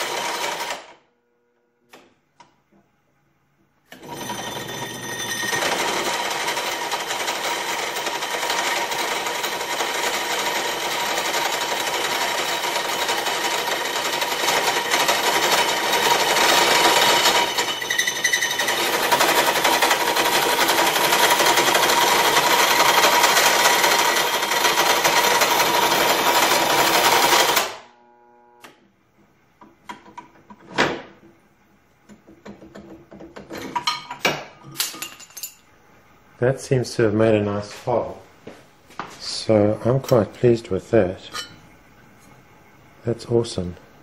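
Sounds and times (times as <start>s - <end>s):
drill press grinding through metal: 0.0s - 1.0s, 3.9s - 27.8s.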